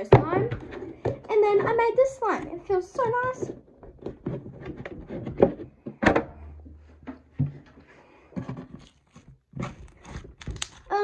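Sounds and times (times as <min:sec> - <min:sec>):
loud thunks: 0:05.4 - 0:07.7
sticky slime popping and crackling: 0:09.6 - 0:11.0.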